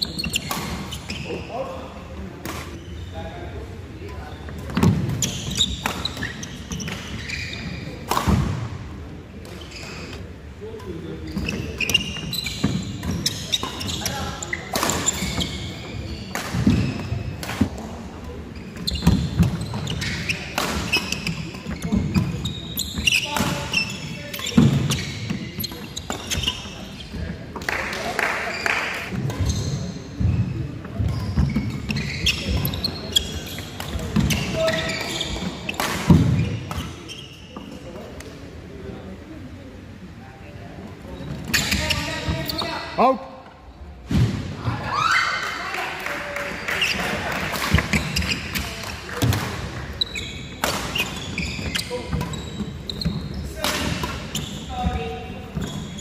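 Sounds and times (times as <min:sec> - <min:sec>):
shoes squeaking on wooden court: 0:00.0 - 0:39.1, 0:40.4 - 0:56.0
players' voices: 0:00.0 - 0:56.0
racket hitting shuttlecock: 0:14.7 - 0:15.6, 0:18.8 - 0:21.9, 0:53.6 - 0:54.3.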